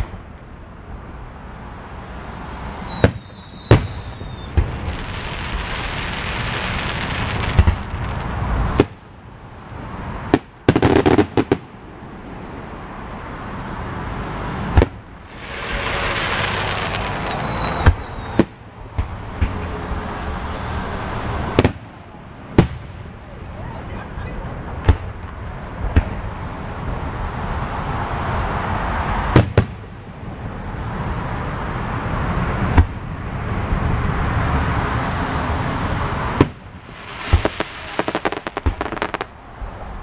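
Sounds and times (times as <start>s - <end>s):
distant fireworks bursting: 0.0s - 9.1s, 10.2s - 12.0s, 14.6s - 23.5s, 24.7s - 26.9s, 29.2s - 30.1s, 36.2s - 40.0s
falling firework whistle: 1.5s - 6.9s, 15.3s - 19.8s.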